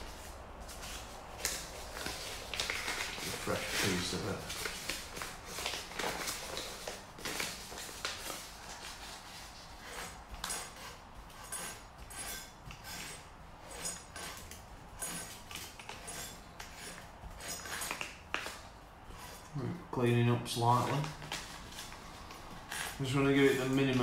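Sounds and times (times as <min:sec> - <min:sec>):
sandpaper scraping metal: 0:08.2 - 0:19.5.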